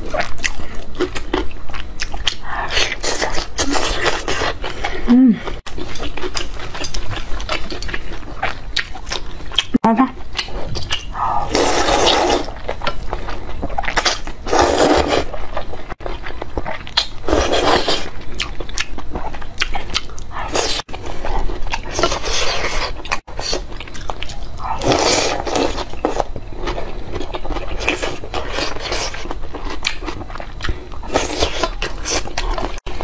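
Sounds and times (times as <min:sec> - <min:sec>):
soft chewing: 0:00.0 - 0:33.0
slurping noodles: 0:10.6 - 0:12.6, 0:14.5 - 0:15.3.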